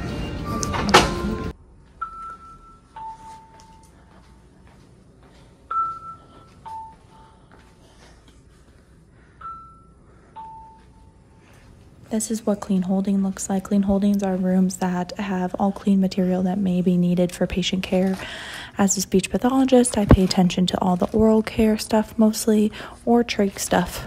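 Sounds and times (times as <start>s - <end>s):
two-note chime: 0.0s - 4.0s, 5.7s - 7.4s.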